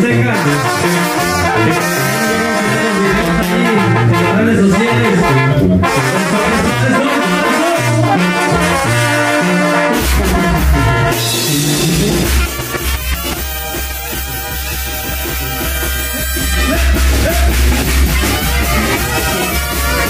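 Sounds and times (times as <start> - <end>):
bass line: 0.0 - 20.0
saxophones: 0.0 - 20.0
trombones: 0.0 - 20.0
trumpets: 0.0 - 20.0
drums: 8.0 - 20.0.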